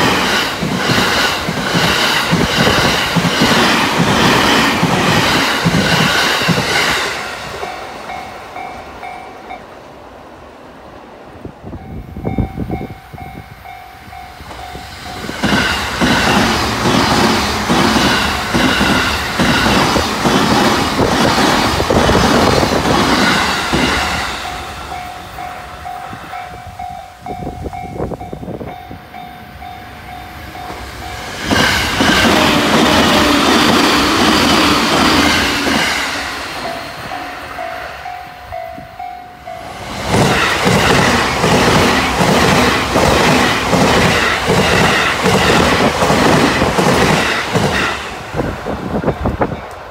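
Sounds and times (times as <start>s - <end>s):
trains passing on rails: 0.0s - 49.9s.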